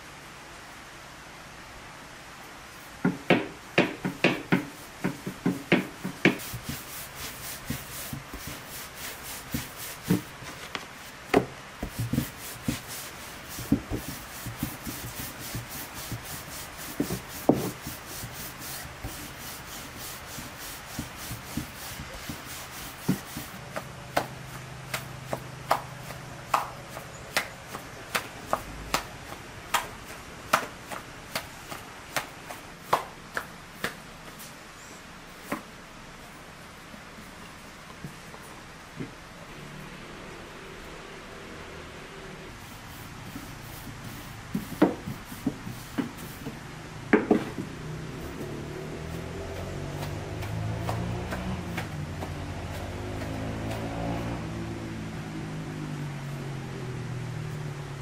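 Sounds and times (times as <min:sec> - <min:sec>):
rolling pin knocking on board: 0:03.0 - 0:06.8
rolling pin rubbing on dough: 0:04.1 - 0:33.0, 0:42.6 - 0:46.6, 0:47.4 - 0:54.4.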